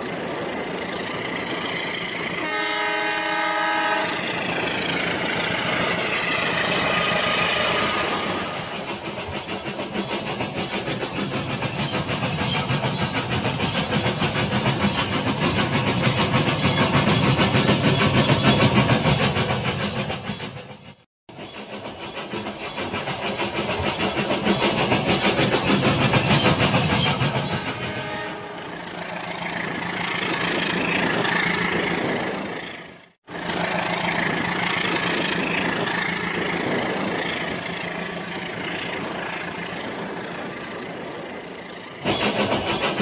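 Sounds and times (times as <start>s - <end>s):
toy train horn: 2.4s - 4.3s, 27.6s - 28.7s
toy train rhythmic clatter: 4.0s - 20.3s, 21.3s - 27.8s, 33.4s - 43.0s.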